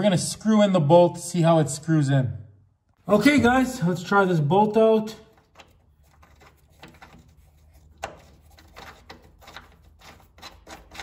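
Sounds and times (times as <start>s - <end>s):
bolt threads clicking and rubbing: 5.3s - 11.0s.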